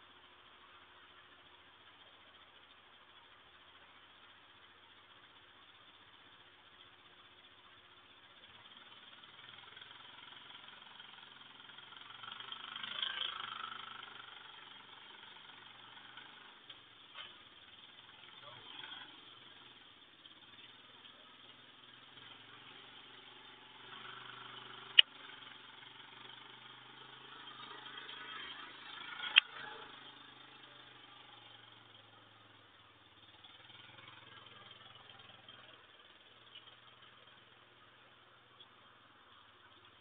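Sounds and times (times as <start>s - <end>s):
sharp clicks: 29.2s - 29.5s.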